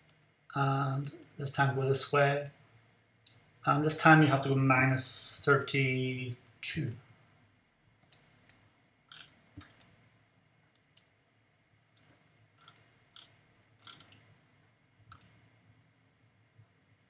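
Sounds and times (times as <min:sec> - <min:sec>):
computer mouse clicks: 0:08.0 - 0:10.0, 0:12.0 - 0:14.2, 0:15.1 - 0:15.4.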